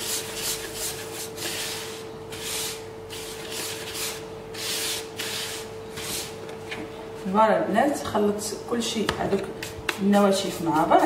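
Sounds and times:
hand stirring dry grain in bowl: 9.6 - 11.0.

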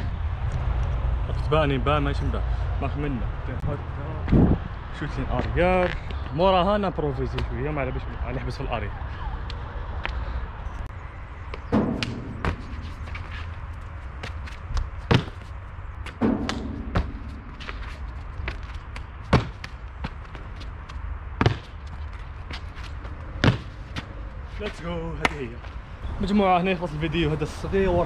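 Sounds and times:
landings and footfalls on concrete: 11.5 - 25.8
light taps and scuffs: 11.5 - 25.8.

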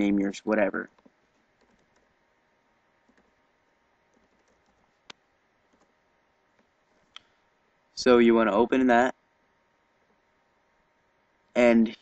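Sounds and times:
keyboard typing: 0.0 - 2.2, 3.0 - 7.2.

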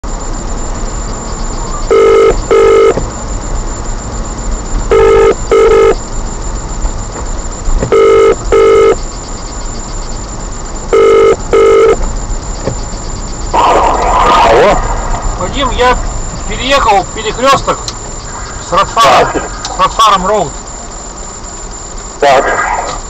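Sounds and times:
car road noise: 0.0 - 23.0
telephone ringback tone: 1.9 - 3.0, 4.9 - 6.0, 7.9 - 9.0, 10.9 - 12.0.

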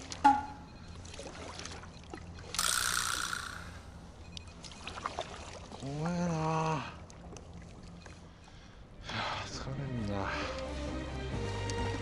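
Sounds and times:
water lapping against a kayak: 0.9 - 2.6, 4.6 - 8.8.

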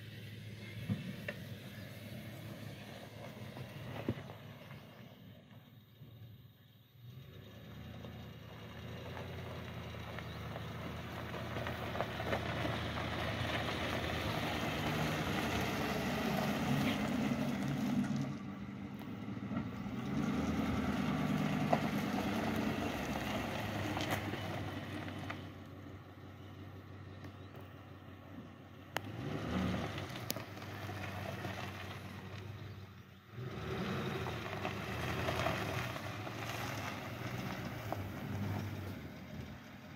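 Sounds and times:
truck engine running: 0.0 - 39.9
tyres crunching over gravel: 0.5 - 5.7, 7.5 - 39.9.

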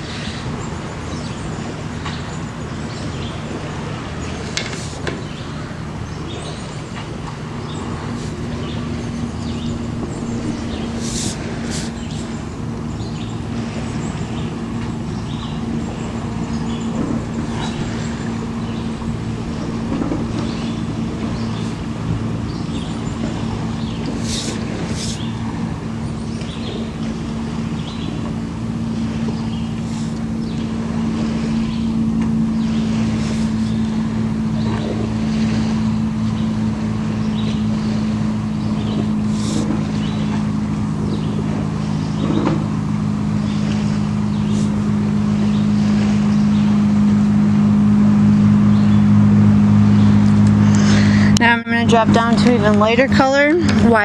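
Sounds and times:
low mechanical hum: 0.0 - 54.0
soft high hissing or scratching: 11.0 - 12.0.

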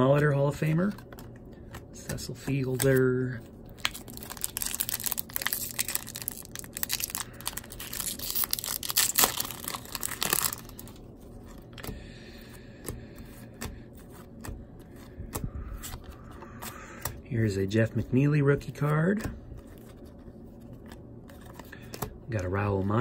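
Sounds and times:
foil wrapper tearing and crinkling: 3.7 - 11.0.

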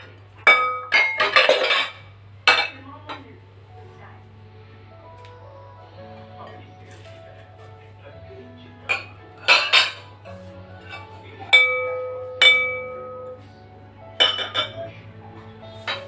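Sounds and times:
glass bowls clinking: 0.0 - 2.8, 8.9 - 13.4, 14.2 - 14.9.

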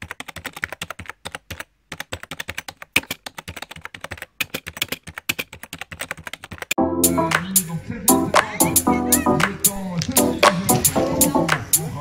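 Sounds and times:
keyboard typing clicks: 0.0 - 6.8.

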